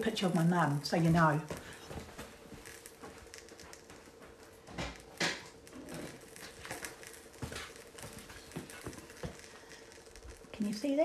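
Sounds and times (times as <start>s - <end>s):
faint steady hum: 0.0s - 11.0s
knocks and rustles: 1.2s - 9.6s.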